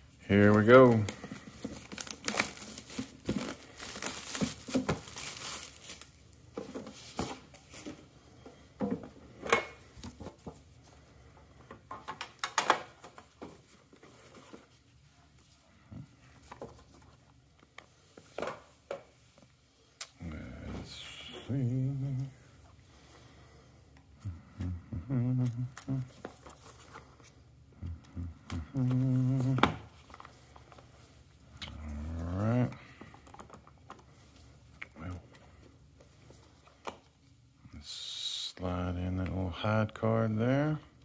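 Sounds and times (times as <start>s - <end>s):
plastic wrap crackling: 0.3s - 6.4s.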